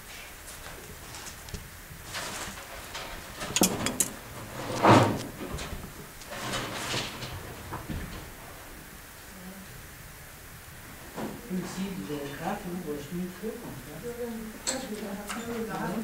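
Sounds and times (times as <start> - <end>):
bark strips scraping and creaking: 2.0 - 5.2.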